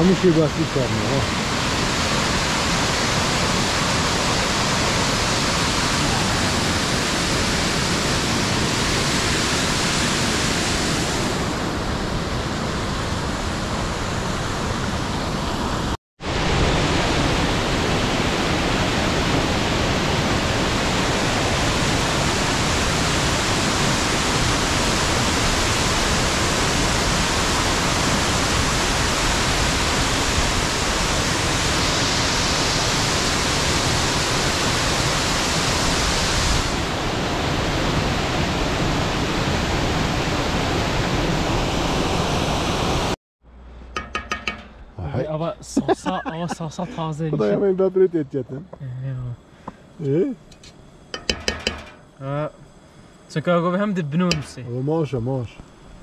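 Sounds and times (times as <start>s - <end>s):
waterfall rushing: 0.0s - 43.2s.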